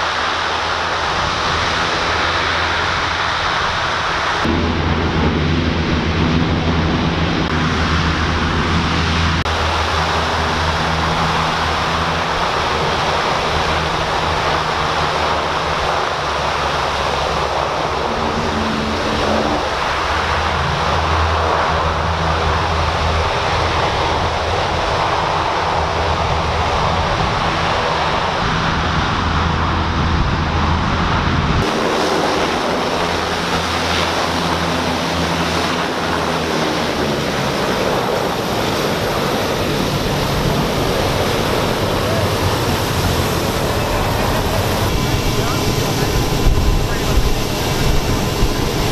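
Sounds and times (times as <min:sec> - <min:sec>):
hovercraft turbines roaring: 0:00.0 - 0:48.9.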